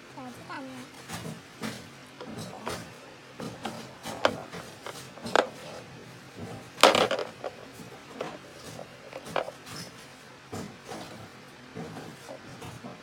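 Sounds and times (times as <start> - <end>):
wooden toy pieces knocking on plastic: 2.2 - 5.8, 6.8 - 9.6.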